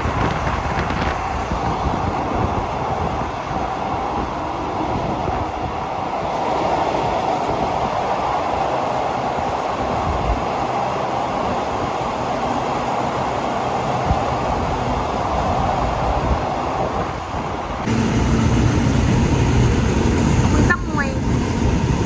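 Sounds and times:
train rumbling on rails: 0.0 - 22.0
deep hum: 17.8 - 22.0.

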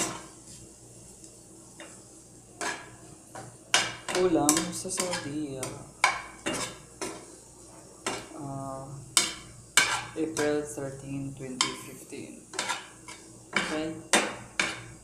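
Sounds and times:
utensil scraping frying pan: 2.6 - 8.3, 9.2 - 15.0.

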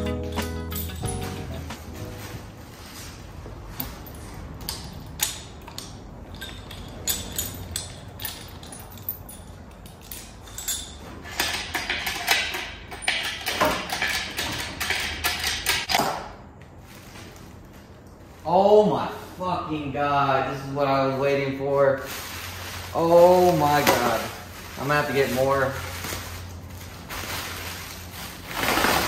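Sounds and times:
metal clanks and creaks of hoist: 3.8 - 16.0.

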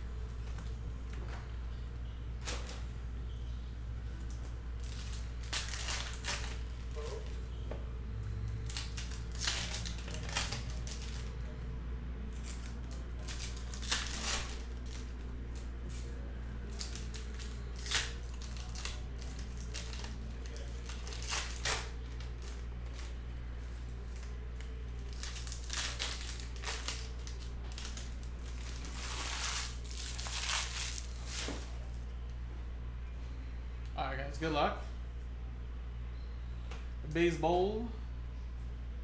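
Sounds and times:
card pack opened: 25.0 - 31.8.

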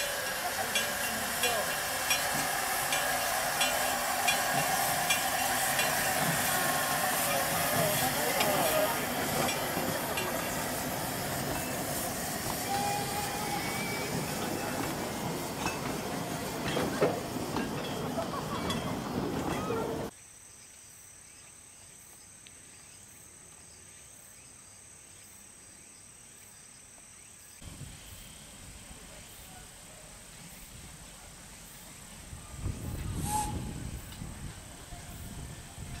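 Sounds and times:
train wheels clattering over rails: 0.0 - 20.1
quiet outdoor ambience: 14.7 - 36.0.

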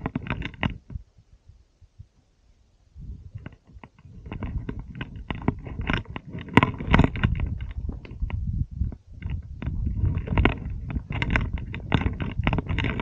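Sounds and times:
low microphone rumble: 2.8 - 13.0.

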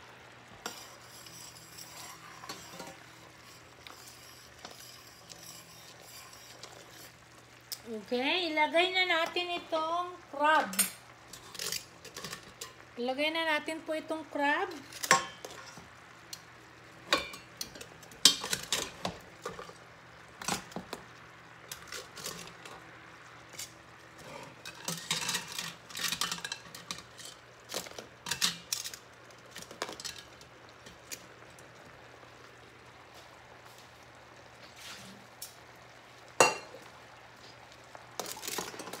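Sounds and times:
metal tongs clinking on pans: 0.6 - 3.0, 10.6 - 12.8, 14.9 - 15.8, 17.1 - 19.7, 24.5 - 29.0, 29.6 - 30.3, 36.4 - 36.8.

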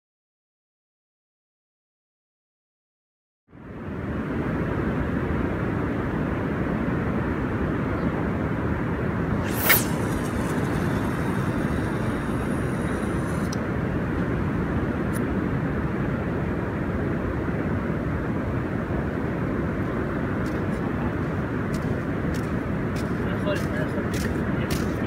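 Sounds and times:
wind buffeting microphone: 4.6 - 25.0
fishing line whirring off reel: 9.3 - 13.6.

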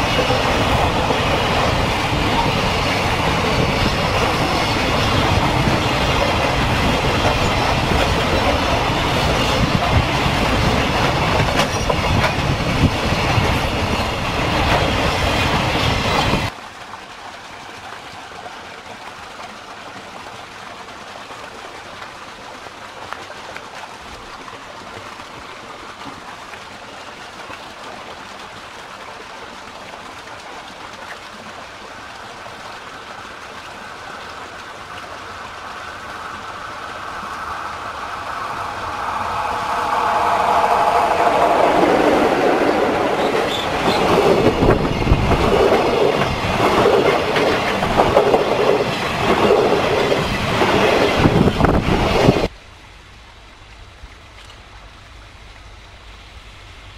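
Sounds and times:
freight train rumbling past: 0.0 - 16.5, 33.6 - 52.5
steady hiss: 33.7 - 56.9.

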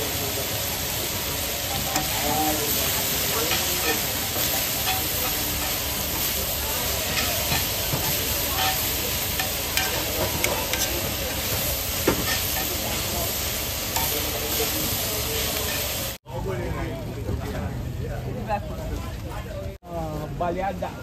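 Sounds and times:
meat and onions sizzling: 0.0 - 16.2
utensils clicking against pan: 1.7 - 13.1.

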